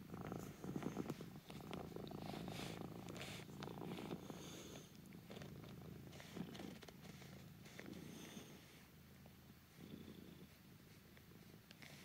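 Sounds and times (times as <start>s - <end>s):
cat purring: 0.0s - 12.0s
hand stroking fur: 0.3s - 4.9s.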